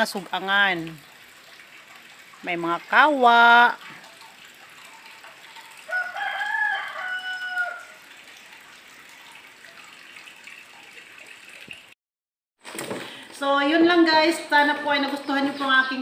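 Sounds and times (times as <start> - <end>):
rooster crowing: 5.9 - 8.0.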